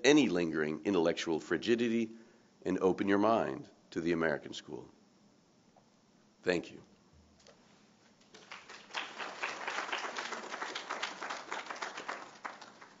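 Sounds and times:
audience applauding: 8.3 - 13.0.

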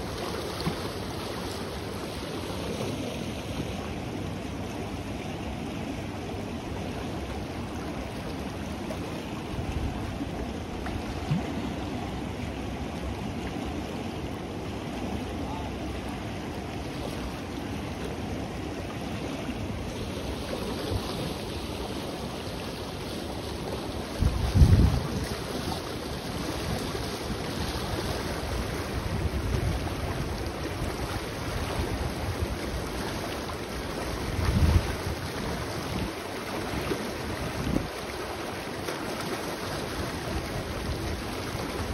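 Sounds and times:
river water rushing: 0.0 - 41.9
wind buffeting microphone: 24.2 - 25.4, 34.1 - 36.1, 37.4 - 38.0.

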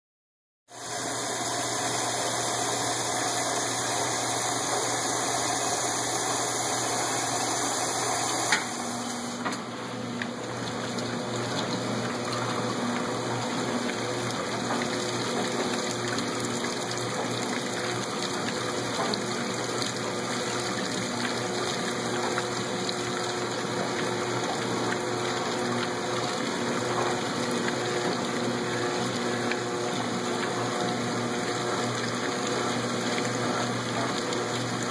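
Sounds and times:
water pouring into washer tub: 0.7 - 34.9
washer sharp click: 8.2 - 9.7.

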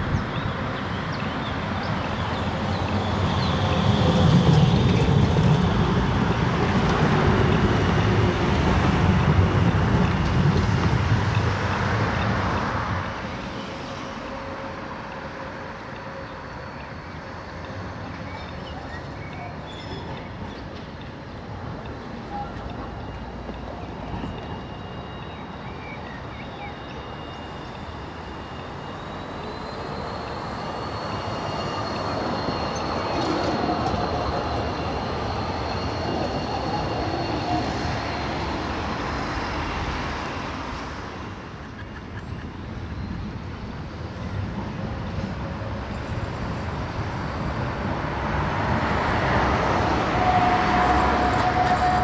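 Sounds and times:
tram wheel squeal: 0.0 - 52.0
tram wheels rumbling on rails: 0.0 - 52.0.

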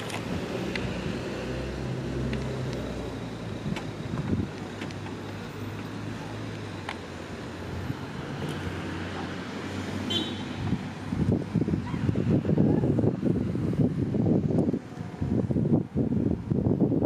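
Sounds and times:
wind buffeting microphone: 0.0 - 5.4, 10.5 - 17.0
folding car roof motor hum: 0.0 - 17.0.

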